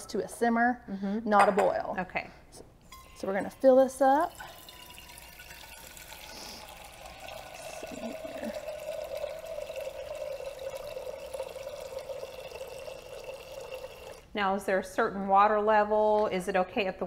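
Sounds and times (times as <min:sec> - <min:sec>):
tap water filling a metal saucepan: 0:02.9 - 0:14.2.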